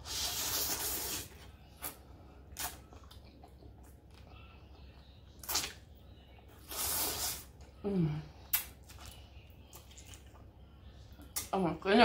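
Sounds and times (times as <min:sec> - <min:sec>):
person slurping noodles: 0:00.0 - 0:01.3, 0:06.6 - 0:07.4
chewing: 0:00.7 - 0:07.7, 0:08.5 - 0:10.5
mouth clicks and smacks: 0:05.4 - 0:05.8, 0:08.5 - 0:10.4.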